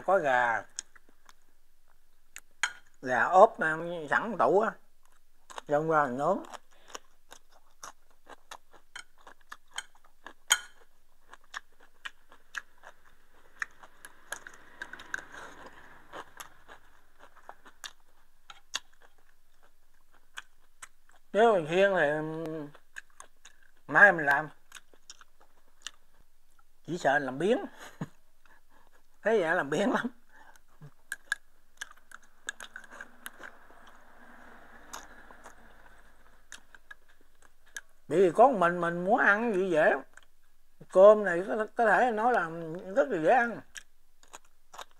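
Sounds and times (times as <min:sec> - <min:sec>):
chewing: 0:05.0 - 0:21.4, 0:22.2 - 0:26.8, 0:30.2 - 0:38.1, 0:43.6 - 0:44.9
chopsticks clicking on bowl: 0:09.7 - 0:10.8.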